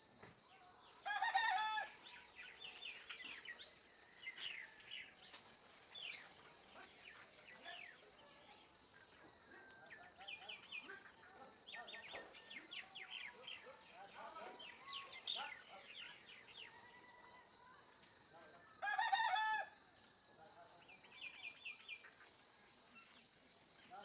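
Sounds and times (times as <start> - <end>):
rooster crowing: 1.0 - 2.0, 18.8 - 19.7
small birds chirping: 2.1 - 17.7.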